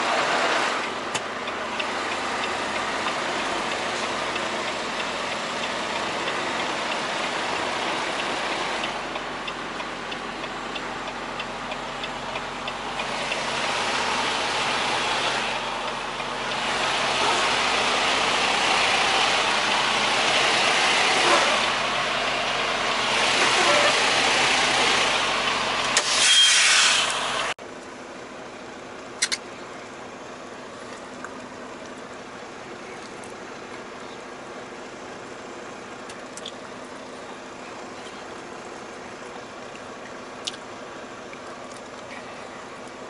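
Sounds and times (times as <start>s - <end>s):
truck engine and road noise: 0.0s - 43.0s
regular ticking: 0.8s - 21.0s.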